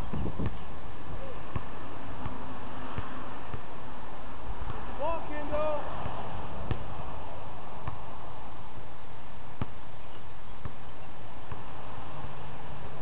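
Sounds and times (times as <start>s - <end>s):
background hiss: 0.0s - 13.0s
basketball thudding: 6.0s - 7.0s, 7.8s - 8.2s.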